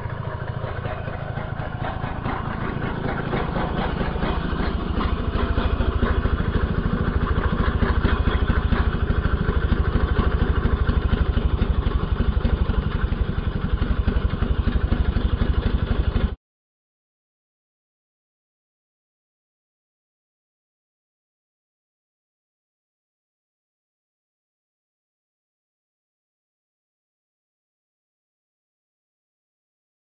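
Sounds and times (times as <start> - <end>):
hedge trimmer engine running: 0.0 - 16.2.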